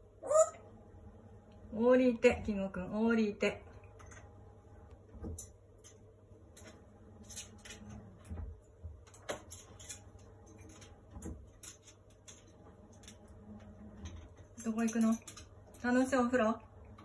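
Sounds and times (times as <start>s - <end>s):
parrot claws tapping metal pole: 9.1s - 12.5s.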